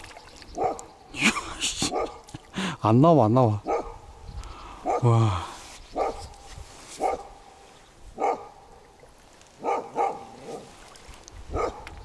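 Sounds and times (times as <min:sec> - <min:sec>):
dog barking: 0:00.6 - 0:00.8, 0:01.9 - 0:02.2, 0:03.7 - 0:04.0, 0:04.8 - 0:05.1, 0:06.0 - 0:06.2, 0:07.0 - 0:07.4, 0:08.2 - 0:08.6, 0:09.6 - 0:10.7, 0:11.5 - 0:11.9.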